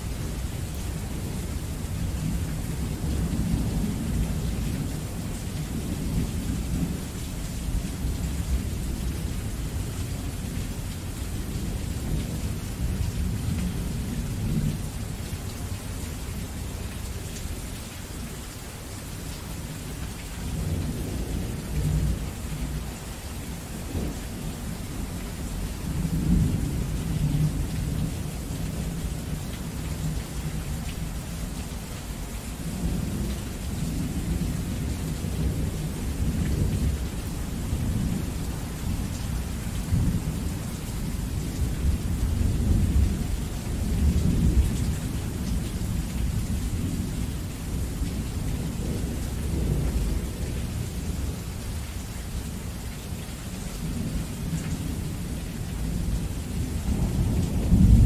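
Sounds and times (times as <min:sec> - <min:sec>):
heavy rain falling: 0:00.0 - 0:58.0
deep rolling thunder: 0:56.6 - 0:58.0.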